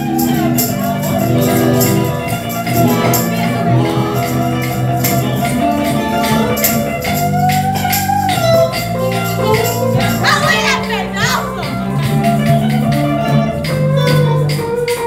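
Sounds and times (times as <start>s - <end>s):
tambourine jangling: 0.0s - 11.7s
electric guitar chords: 0.0s - 15.0s.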